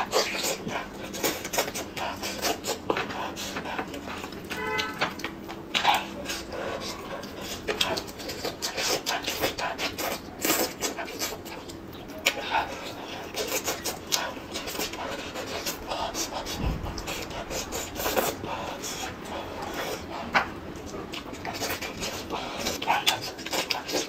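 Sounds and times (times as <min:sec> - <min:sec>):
wet chewing and lip smacking: 0:00.0 - 0:24.0.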